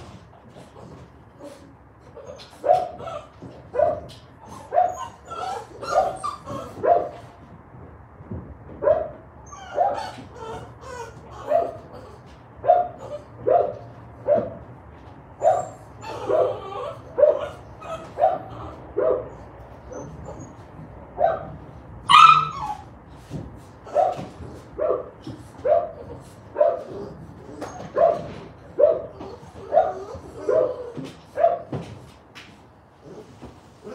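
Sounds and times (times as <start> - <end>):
dog barking: 17.2 - 17.6, 18.2 - 20.1, 21.2 - 21.5, 26.6 - 27.0, 28.0 - 30.8, 31.4 - 31.8.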